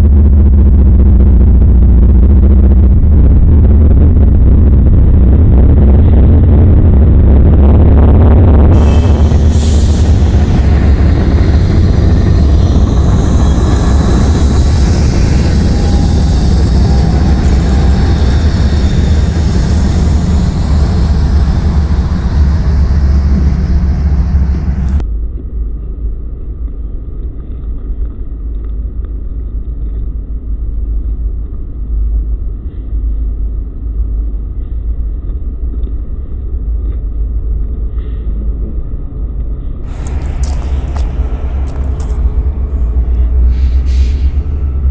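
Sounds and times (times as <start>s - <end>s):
locomotive engine rumble: 0.0s - 25.0s, 39.8s - 44.9s
wheel and rail noise: 7.6s - 25.0s, 39.8s - 44.9s.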